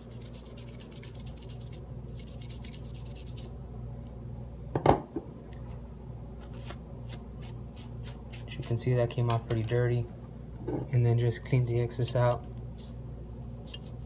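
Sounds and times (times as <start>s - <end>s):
toothbrush scrubbing metal: 0.0s - 3.5s.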